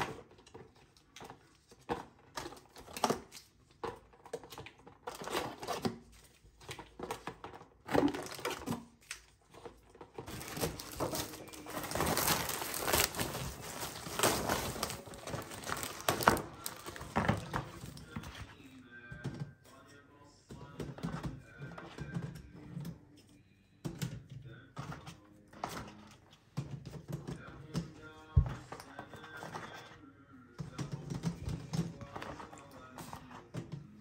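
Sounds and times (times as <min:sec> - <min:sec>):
plastic bags rustling: 0:01.3 - 0:18.4.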